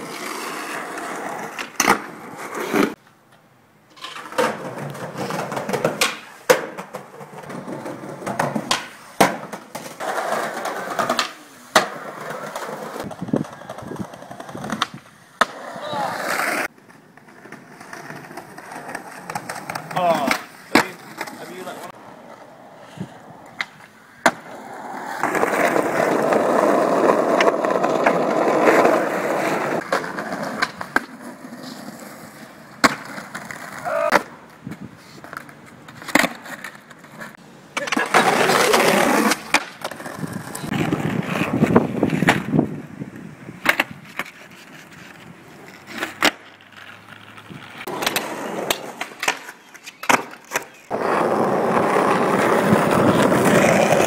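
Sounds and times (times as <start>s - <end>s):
skateboard wheels rolling: 0.0s - 54.0s
skateboard clacks: 4.0s - 21.6s, 23.5s - 31.7s.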